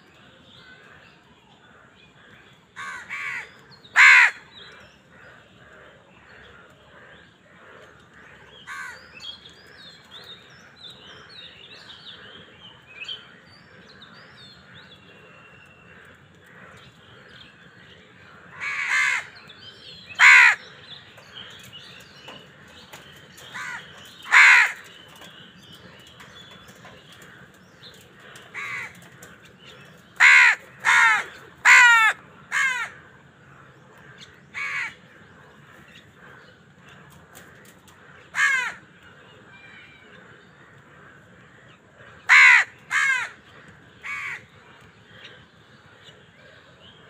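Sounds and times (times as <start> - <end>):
crows cawing: 2.8 - 9.2, 18.3 - 25.3, 25.9 - 39.0, 40.2 - 45.4.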